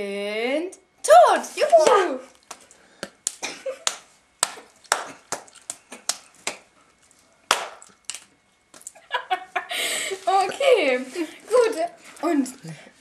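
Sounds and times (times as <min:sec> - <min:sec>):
hand slaps: 0:01.8 - 0:06.7, 0:07.5 - 0:08.9.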